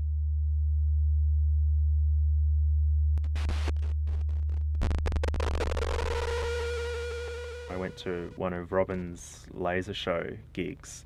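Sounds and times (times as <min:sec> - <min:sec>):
deep steady sine tone: 0:00.0 - 0:09.4
higher buzzing tone: 0:03.1 - 0:08.5
fast crackling clicks: 0:03.2 - 0:07.9.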